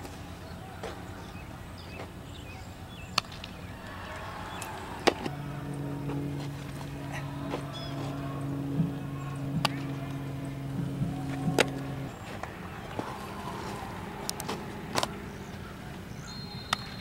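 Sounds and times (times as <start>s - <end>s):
low motor hum: 3.4s - 17.0s.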